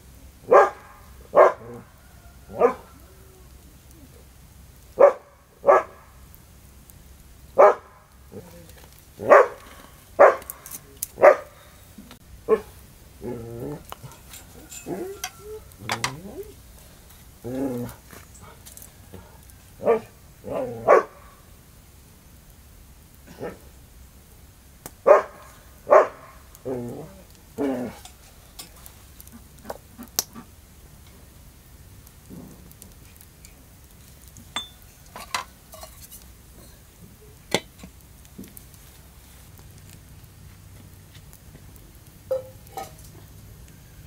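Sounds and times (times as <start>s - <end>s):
dog barking and whimpering: 0.5s - 1.8s, 2.5s - 3.0s, 5.0s - 6.0s, 7.6s - 9.6s, 10.2s - 10.6s, 11.2s - 11.5s, 12.5s - 16.6s, 19.8s - 21.3s, 25.1s - 28.0s
aluminium cookware clinking: 13.9s - 16.2s, 34.5s - 36.8s, 42.3s - 43.1s
metal bowl clanking on pot: 13.9s - 16.2s, 34.6s - 36.0s, 42.3s - 43.0s.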